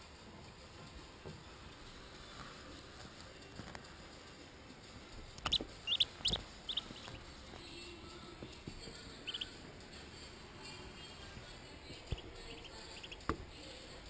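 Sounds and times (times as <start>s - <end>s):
duckling peeping: 5.4s - 7.3s, 9.2s - 9.6s, 11.9s - 13.3s.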